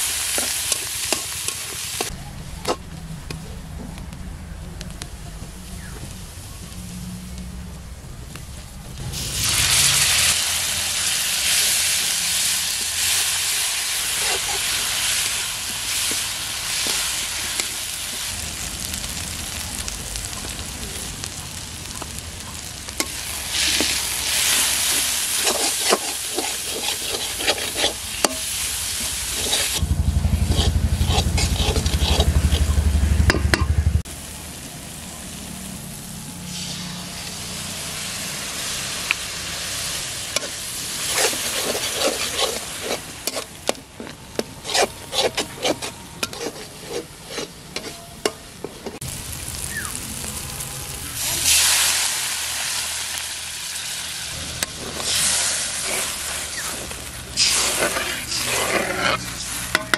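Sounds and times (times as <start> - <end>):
paste sizzling in hot oil: 0.0 - 2.1, 9.0 - 33.2, 34.1 - 48.0, 48.9 - 59.9
loud low rumble: 2.2 - 12.4, 29.8 - 36.6
metal spatula scraping pan: 11.4 - 15.3, 23.0 - 33.7, 40.4 - 49.0, 54.6 - 59.9.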